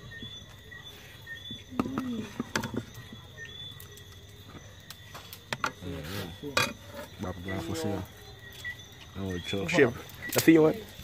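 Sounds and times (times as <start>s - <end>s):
insect chirring: 0.0s - 11.0s.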